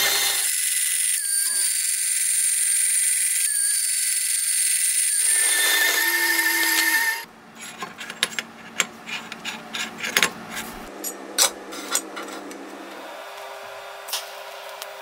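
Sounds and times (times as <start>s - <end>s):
band saw cutting steel: 0.0s - 7.3s.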